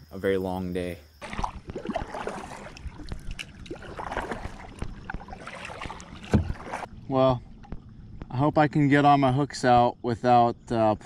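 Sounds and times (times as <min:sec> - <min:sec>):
kayak paddle splashing water: 0:01.2 - 0:08.3.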